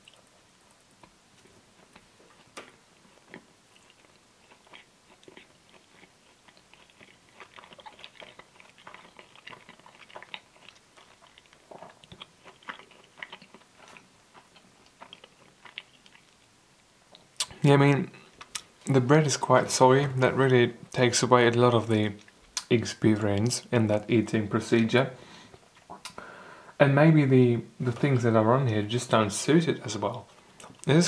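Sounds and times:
chewing sandwich: 0:00.0 - 0:17.6.

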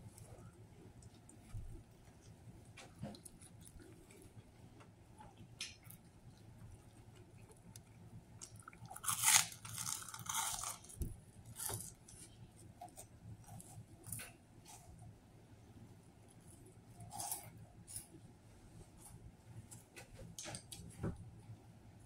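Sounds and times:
bread crust crunching: 0:00.0 - 0:14.9.

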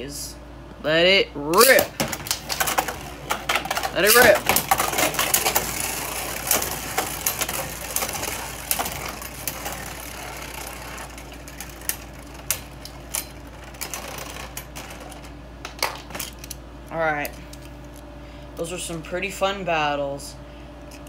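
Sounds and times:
spinning tops clicking together: 0:01.6 - 0:16.6
spinning tops whirring and rattling: 0:01.6 - 0:16.6.

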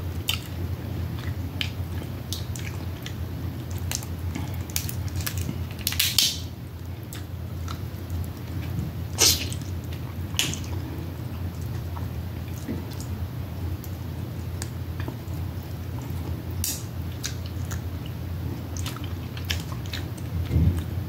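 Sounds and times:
low steady hum: 0:00.0 - 0:21.0
wet mouth smacking and sucking: 0:09.2 - 0:09.6.

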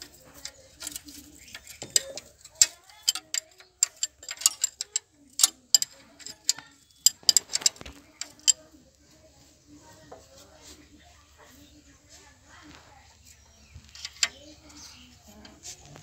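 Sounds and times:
spanner clicking against bolt: 0:00.4 - 0:08.6.

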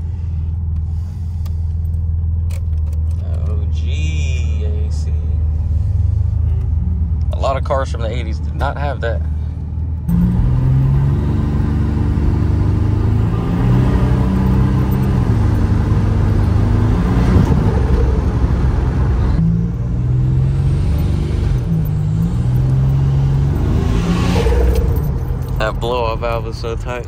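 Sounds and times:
car engine accelerating: 0:09.6 - 0:27.0.

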